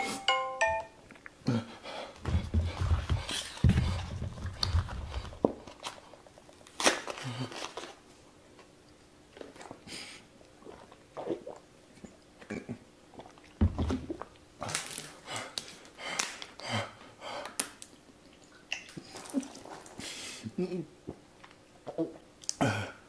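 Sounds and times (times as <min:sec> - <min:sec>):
man gulping a drink: 0:09.4 - 0:14.4, 0:18.5 - 0:20.0.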